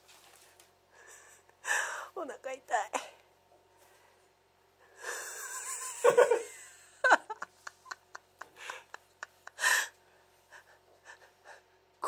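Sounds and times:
woman laughing: 5.1 - 9.9.

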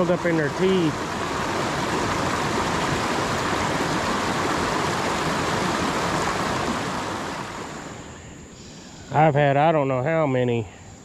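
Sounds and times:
river water over rocks: 0.0 - 8.2.

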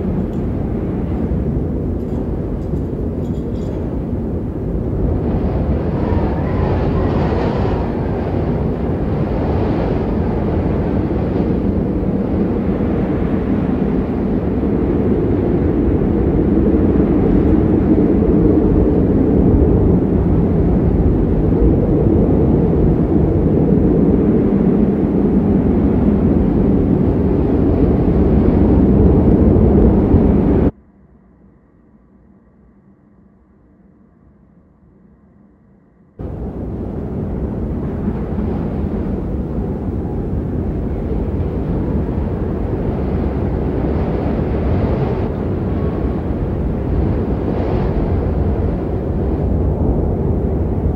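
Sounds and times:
strong wind gusting: 0.0 - 30.8, 36.2 - 50.9.

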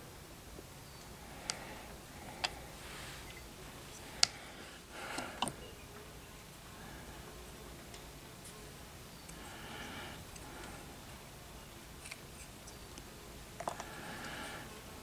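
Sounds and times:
clay piece clicking in fingers: 12.0 - 14.0.

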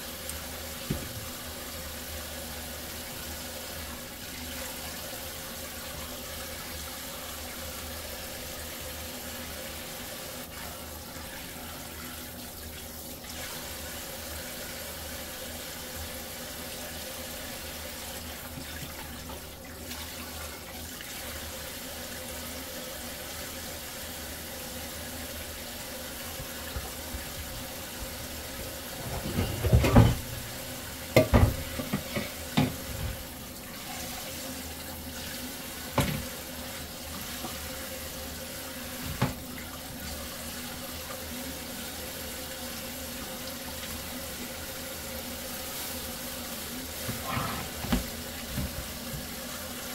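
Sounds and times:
tap running into metal sink: 0.8 - 1.3, 28.8 - 33.2, 35.9 - 36.3, 39.0 - 39.4, 47.0 - 49.4.

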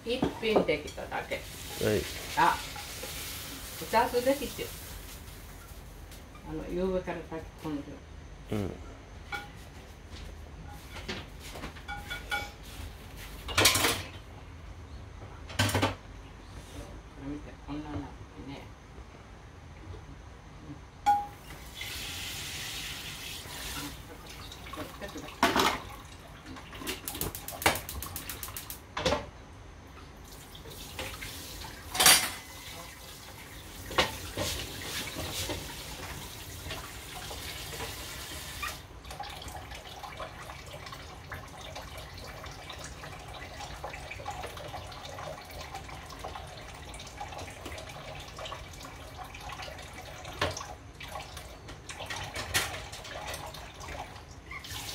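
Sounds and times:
kitchenware clattering: 11.8 - 12.7, 13.4 - 14.2, 21.1 - 21.4, 24.8 - 25.9, 31.8 - 32.9.

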